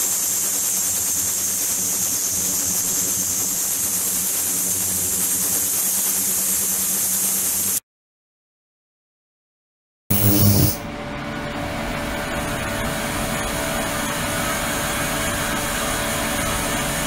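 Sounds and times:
ultrasonic cleaner hissing and humming: 0.0s - 7.7s, 10.1s - 10.9s, 12.1s - 17.0s.

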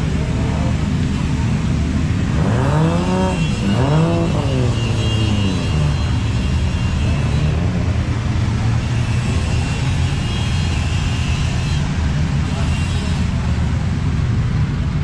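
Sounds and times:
car engine revving: 0.0s - 6.2s.

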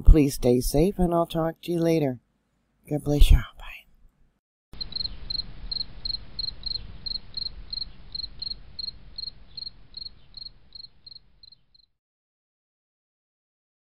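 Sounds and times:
faint background hiss: 0.0s - 11.8s
cricket chirping: 4.8s - 11.9s.

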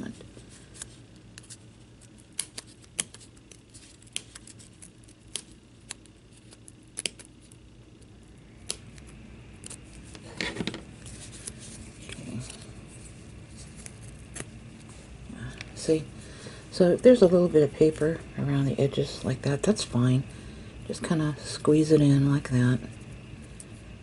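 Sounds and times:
scissors snipping: 1.4s - 7.6s, 8.6s - 9.8s
rustling and scraping: 9.7s - 15.2s.

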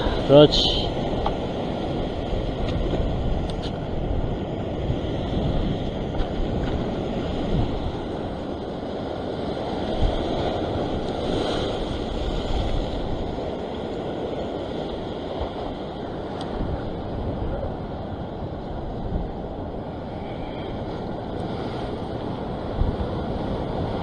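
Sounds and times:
surf breaking on rocks: 0.0s - 17.8s
wind buffeting microphone: 0.0s - 24.0s.

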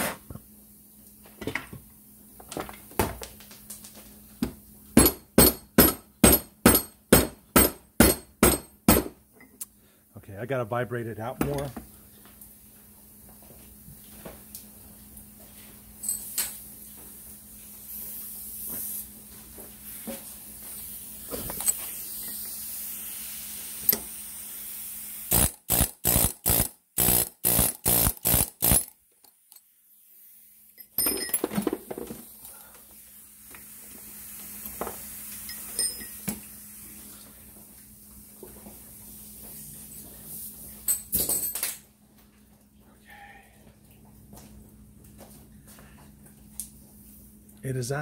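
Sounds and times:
air hammer rattling: 25.3s - 28.9s
metal parts clattering: 30.9s - 31.9s.

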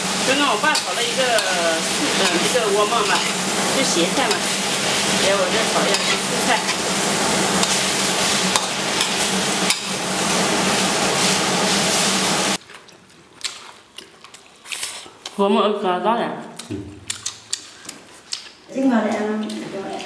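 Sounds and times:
vegetables sizzling in a wok: 0.0s - 12.6s
spatula scraping a pan: 0.6s - 12.0s.

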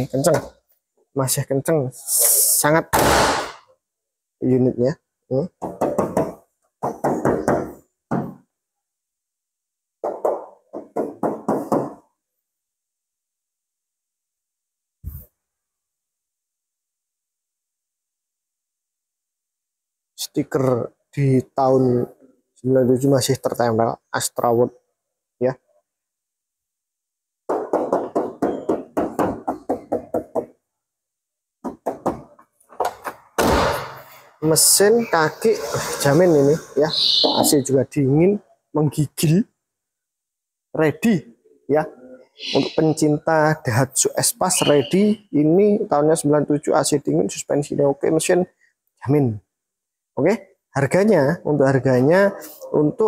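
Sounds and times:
knuckles knocking on sheet metal: 5.6s - 8.4s, 10.0s - 12.0s, 27.5s - 30.6s, 31.6s - 32.3s.

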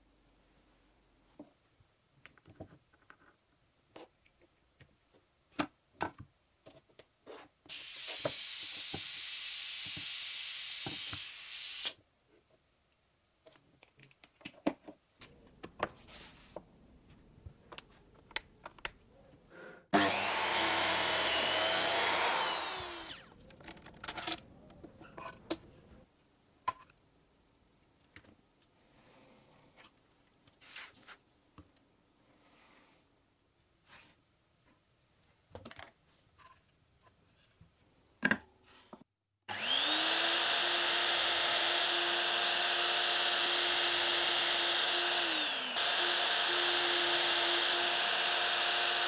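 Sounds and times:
compressed air hissing: 7.7s - 12.0s
circular saw cutting plywood: 19.9s - 23.4s, 39.5s - 49.0s.

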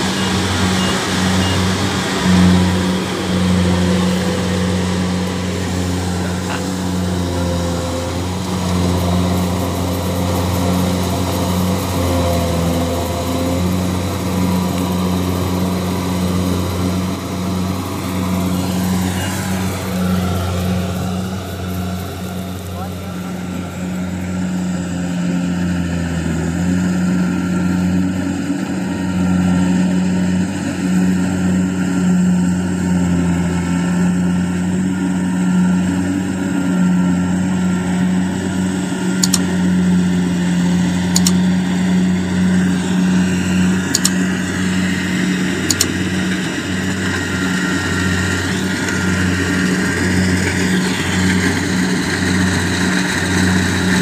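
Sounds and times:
combine harvester diesel engine: 0.0s - 54.0s
sharp clicks: 39.2s - 39.5s, 41.1s - 41.4s, 43.9s - 44.2s, 45.6s - 46.0s.

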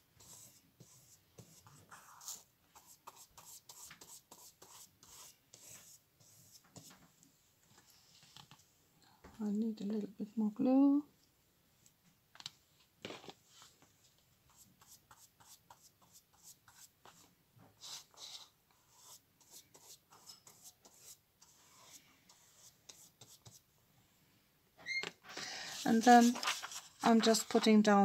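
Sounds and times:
paintbrush strokes on paper: 0.2s - 7.2s, 13.4s - 23.7s, 25.5s - 27.9s.

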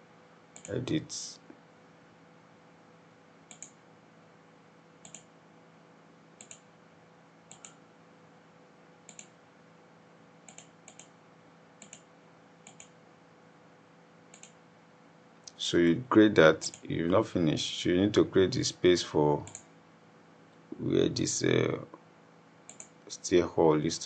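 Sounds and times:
faint electrical hum: 0.0s - 24.0s
computer mouse clicks: 3.4s - 3.8s, 5.0s - 5.3s, 6.4s - 6.7s, 7.5s - 7.8s, 9.0s - 9.4s, 10.4s - 11.2s, 11.8s - 13.0s, 14.3s - 14.6s, 19.5s - 19.7s, 22.7s - 23.0s.

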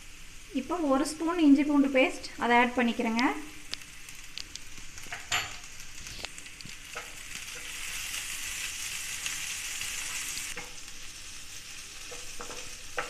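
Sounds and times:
onions sizzling in hot oil: 0.0s - 13.0s
spatula stirring in pan: 4.8s - 13.0s.

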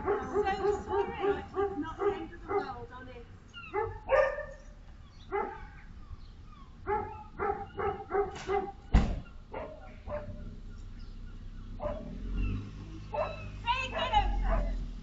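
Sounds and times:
dog barking: 0.0s - 2.8s, 3.7s - 4.6s, 5.3s - 5.8s, 6.8s - 8.9s, 9.5s - 10.4s, 11.8s - 12.1s, 13.1s - 14.8s
loud thump: 8.4s - 9.3s.

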